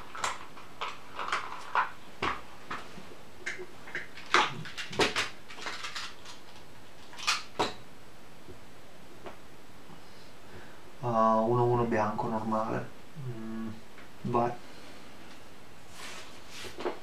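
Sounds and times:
plastic dice rattling in a box: 4.2s - 7.4s.

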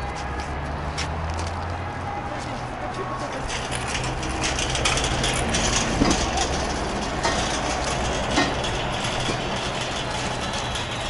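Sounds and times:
engine idling: 3.0s - 11.0s.

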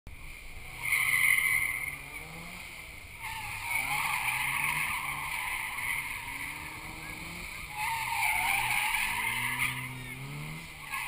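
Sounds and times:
car engines: 0.1s - 11.0s
tyres squealing: 3.1s - 11.0s.

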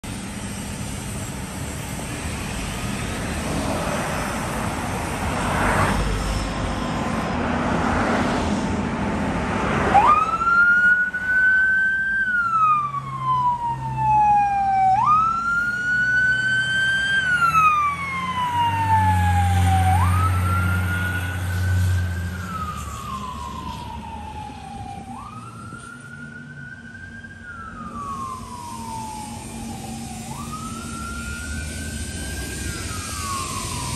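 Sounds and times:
fire engine engine running: 0.0s - 33.9s
siren wailing: 9.9s - 33.9s.

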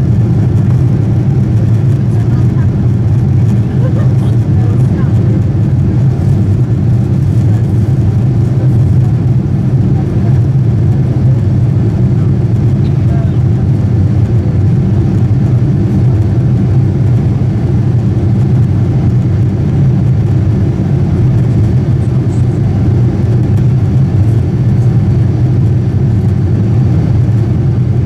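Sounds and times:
jet engine rumble in cabin: 0.0s - 28.0s.

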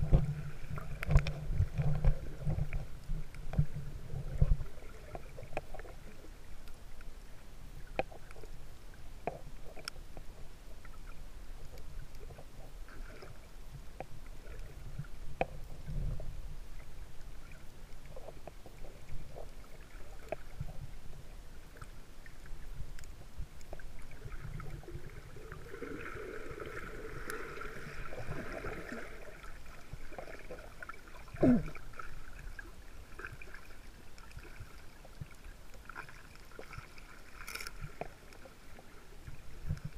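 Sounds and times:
muffled underwater rush of water: 0.0s - 39.9s
faint clicks: 0.8s - 3.8s, 9.2s - 15.9s, 21.7s - 23.9s.

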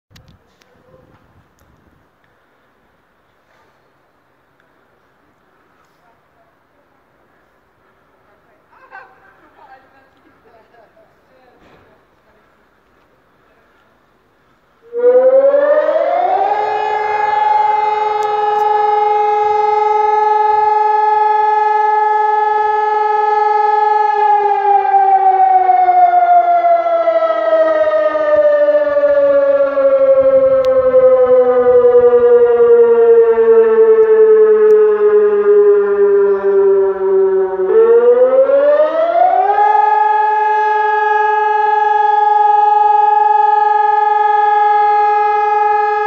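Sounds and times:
electronic siren wailing: 14.8s - 46.0s.

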